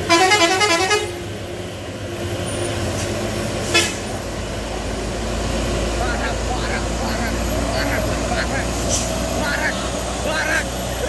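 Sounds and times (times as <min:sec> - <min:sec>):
truck horn honking: 0:00.0 - 0:01.3, 0:03.6 - 0:04.2
diesel trucks rumbling: 0:00.0 - 0:11.0.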